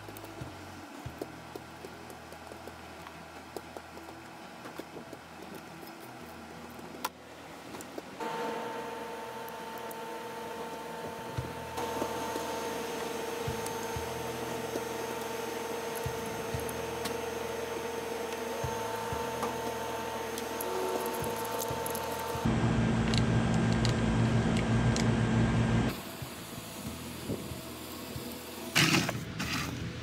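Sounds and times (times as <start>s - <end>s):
electric blower motor whining: 8.2s - 28.4s.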